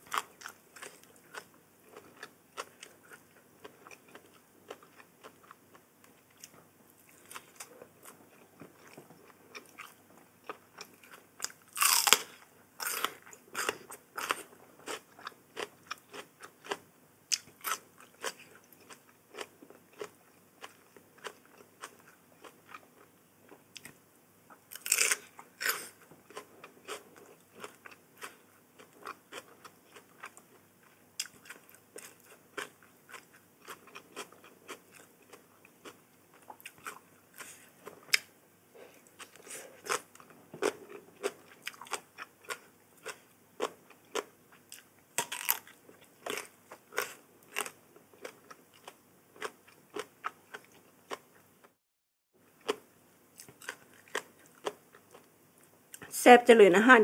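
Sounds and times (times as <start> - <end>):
person chewing and crunching food: 0.0 - 51.8, 52.4 - 56.1.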